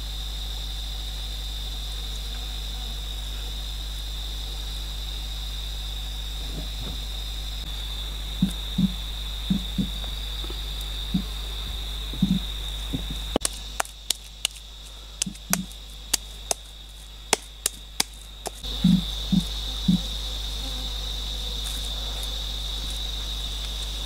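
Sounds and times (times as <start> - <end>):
high insect drone: 0.0 - 24.0
hands slapping wet clay: 12.2 - 18.6.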